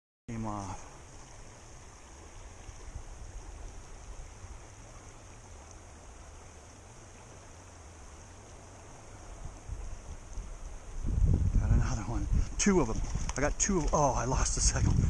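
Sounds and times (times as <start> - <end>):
river flowing over rocks: 0.4 - 11.2.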